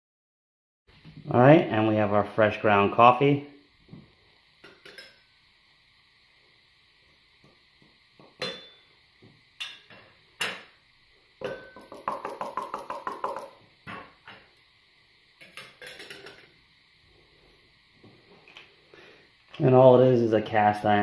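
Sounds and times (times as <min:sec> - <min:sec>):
metal lid clinking on glass: 0:04.6 - 0:05.2, 0:08.4 - 0:08.8, 0:11.4 - 0:14.4, 0:15.4 - 0:16.5
knocks on grinder container: 0:11.4 - 0:14.1.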